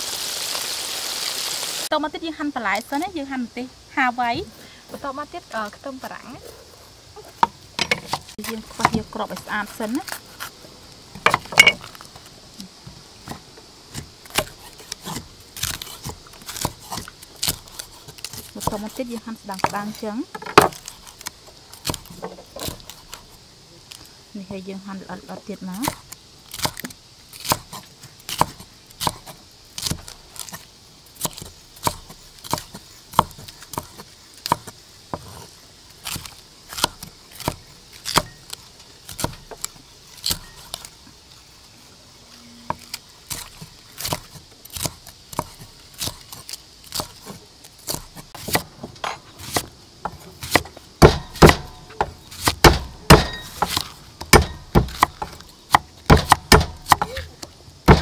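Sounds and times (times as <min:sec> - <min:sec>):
cleaver chopping on wooden block: 0:19.6 - 0:21.0, 0:26.6 - 0:30.6, 0:31.2 - 0:35.4, 0:47.9 - 0:58.0.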